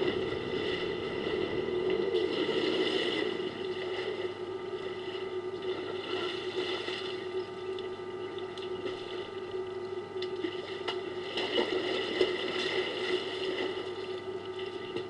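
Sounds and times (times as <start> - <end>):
low hum and hiss: 0.0 - 15.0.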